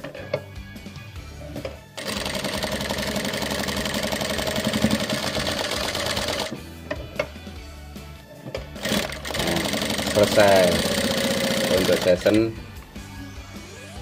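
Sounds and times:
sewing machine stitching: 2.0s - 6.6s, 8.8s - 12.4s.

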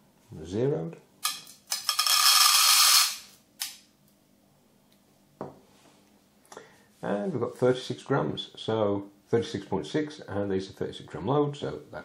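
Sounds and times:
metal pellets rattling into tin: 1.2s - 3.3s
faint knock: 5.4s - 5.6s.

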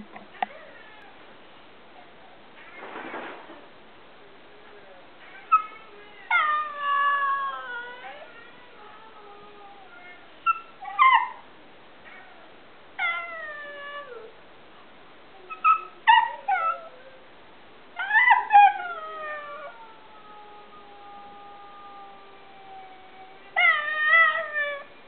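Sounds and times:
dog howling and whining: 5.3s - 11.4s, 12.1s - 14.4s, 15.5s - 17.2s, 18.0s - 25.0s.

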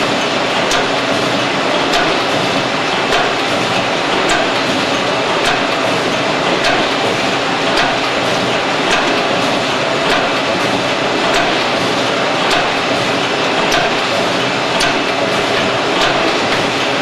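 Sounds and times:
wrapping machine running: 0.0s - 17.0s
machine clicking sharply: 16.0s - 16.8s.

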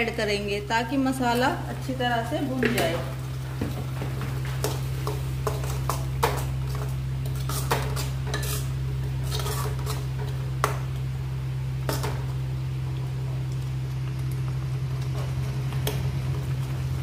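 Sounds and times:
steady low hum: 0.0s - 17.0s
spoon scraping paste in pan: 5.0s - 10.1s.

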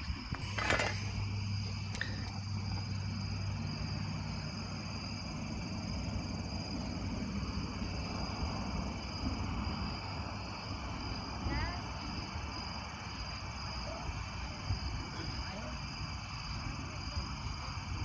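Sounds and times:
low hum: 0.0s - 11.1s
night insects chirping: 0.0s - 18.0s.

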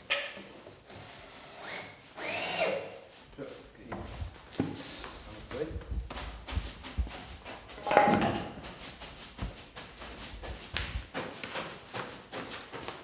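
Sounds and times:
scraping clatter: 7.7s - 8.6s
wooden frame knocks and clunks: 7.8s - 8.6s.

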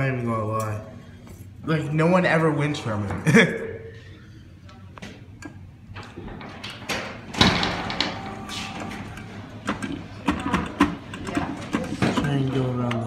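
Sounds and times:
arcade background noise: 0.0s - 13.0s
claw machine clicks and knocks: 7.4s - 13.0s.

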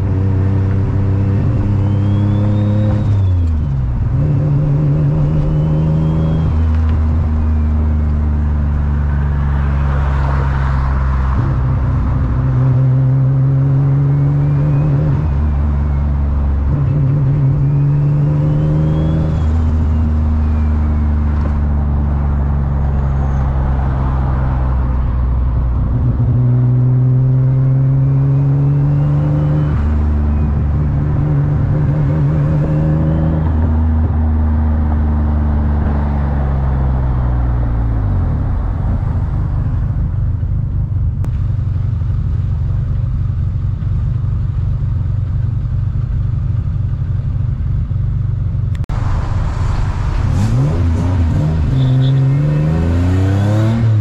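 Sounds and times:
car engine accelerating: 0.0s - 42.3s, 48.7s - 54.0s
turbo whistle: 1.5s - 3.6s, 5.1s - 6.7s, 51.6s - 52.8s.

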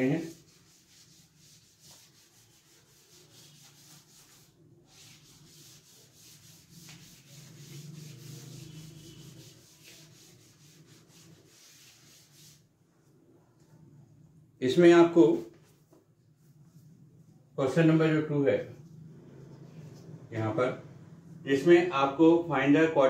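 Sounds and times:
duster rubbing chalkboard: 0.0s - 12.7s.

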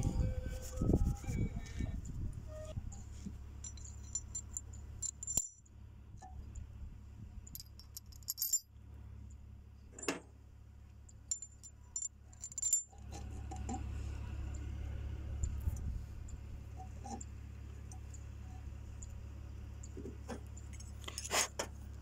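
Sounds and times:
steady low hum: 0.0s - 22.0s
metal ring clinking on shaft: 1.7s - 6.6s, 7.4s - 8.7s, 11.1s - 21.4s.

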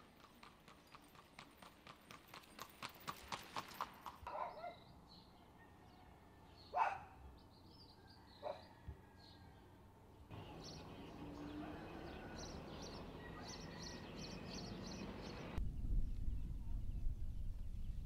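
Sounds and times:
horse hooves on asphalt: 0.0s - 4.5s.

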